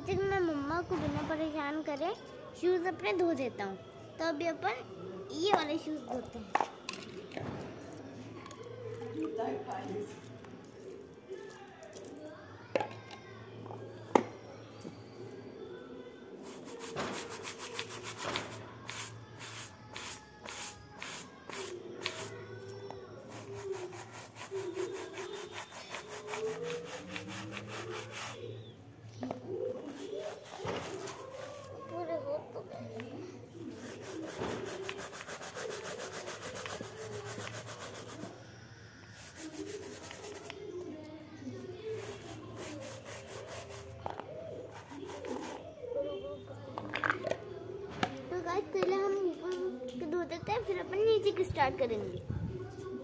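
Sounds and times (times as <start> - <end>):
brush scrubbing a shoe: 16.4 - 22.4, 23.2 - 28.4, 29.8 - 31.8, 33.7 - 38.4, 39.1 - 40.5, 41.8 - 43.9, 44.7 - 45.6.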